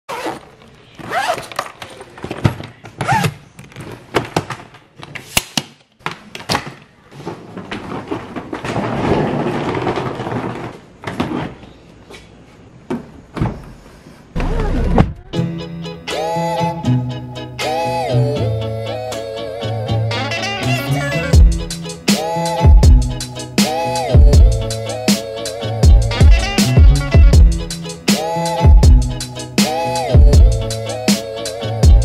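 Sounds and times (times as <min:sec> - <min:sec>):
suitcase wheels rolling on tiles: 0:06.8 - 0:12.0.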